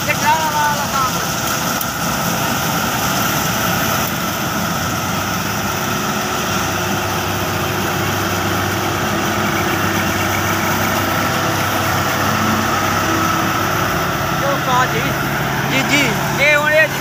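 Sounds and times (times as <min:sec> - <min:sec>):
combine harvester diesel engine: 0:00.0 - 0:17.0
whine of threshing machinery: 0:00.0 - 0:17.0.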